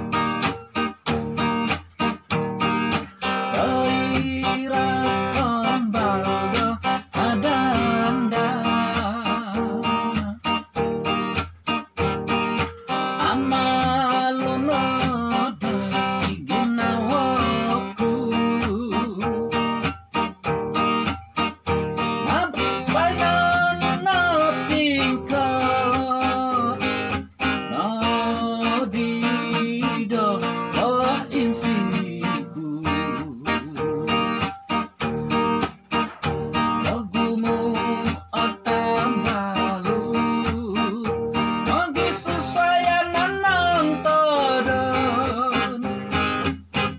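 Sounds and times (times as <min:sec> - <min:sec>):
acoustic guitar strumming: 0:00.0 - 0:46.9
man humming: 0:03.2 - 0:10.9.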